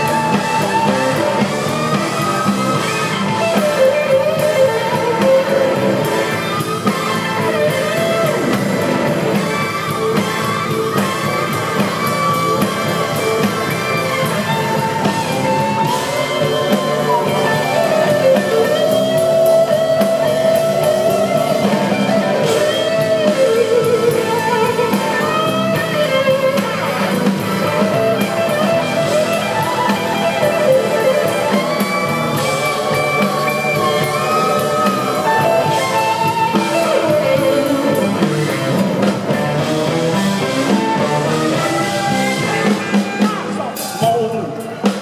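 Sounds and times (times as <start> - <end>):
band backing: 0.0 - 45.0
electric blues guitar solo: 0.0 - 45.0.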